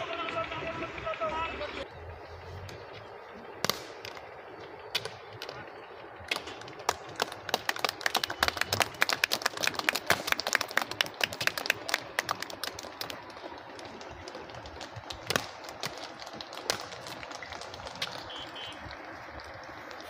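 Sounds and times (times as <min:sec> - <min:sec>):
boots marching on tarmac: 0:10.0 - 0:19.1.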